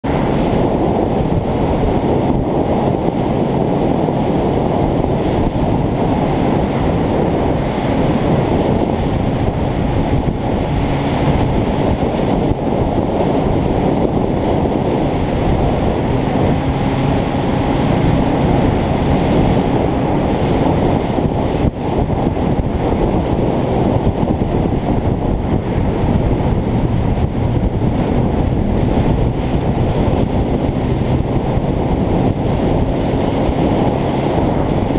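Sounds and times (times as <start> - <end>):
vehicle engine running: 0.0 - 34.9
wind buffeting microphone: 0.0 - 34.9.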